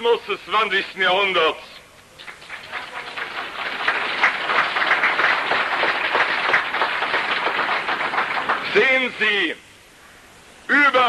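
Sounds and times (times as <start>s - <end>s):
audience applauding: 2.2s - 9.2s.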